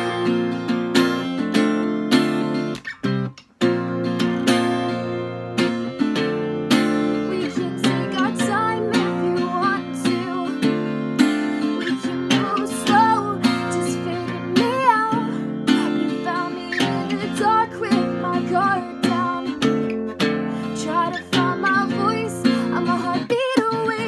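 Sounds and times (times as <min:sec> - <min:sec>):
acoustic guitar strumming: 0:00.0 - 0:24.0
person singing: 0:07.0 - 0:24.0.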